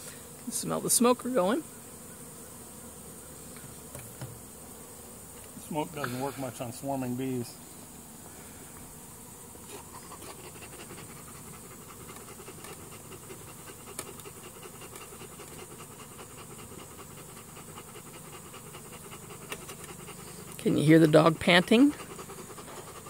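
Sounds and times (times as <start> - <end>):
dog panting: 9.7 - 23.0.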